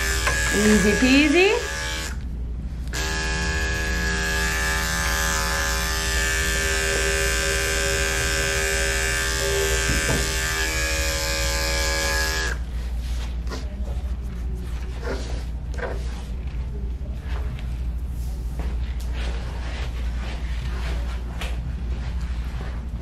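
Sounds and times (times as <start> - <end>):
electric clipper humming: 0.0 - 2.2, 2.9 - 12.6.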